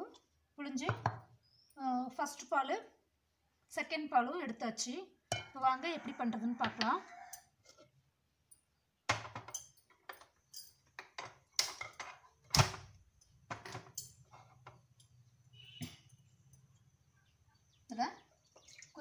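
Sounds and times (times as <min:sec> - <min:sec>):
clay pot knocking and clattering: 0:00.8 - 0:01.3, 0:09.1 - 0:12.8, 0:13.4 - 0:14.9.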